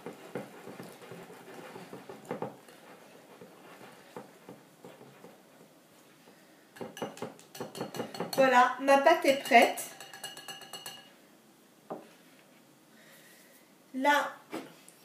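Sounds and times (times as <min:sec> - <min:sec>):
whisk tapping ceramic bowl: 0:00.0 - 0:05.7, 0:06.8 - 0:08.6, 0:09.2 - 0:11.1.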